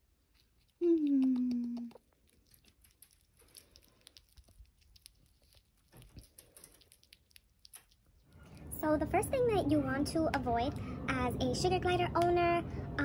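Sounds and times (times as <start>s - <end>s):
small animal chewing and crunching: 0.0s - 9.4s.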